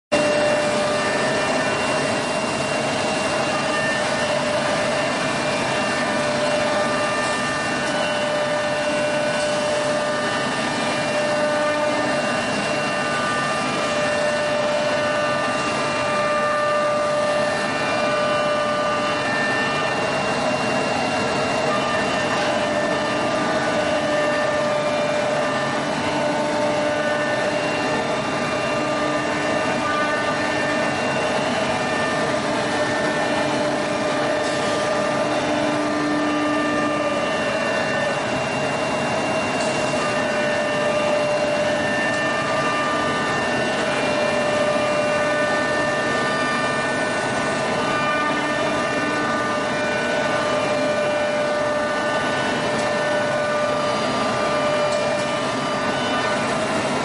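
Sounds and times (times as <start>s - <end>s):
cnc router humming and whining: 0.1s - 57.0s.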